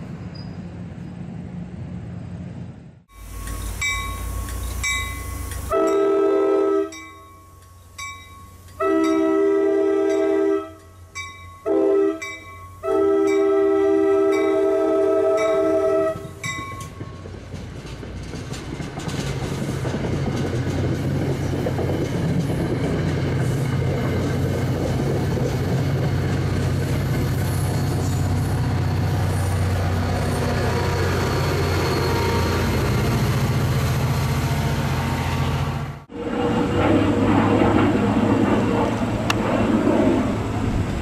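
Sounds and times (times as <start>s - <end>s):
diesel locomotive drone: 0.0s - 41.0s
train wheels clattering over rails: 16.5s - 32.1s.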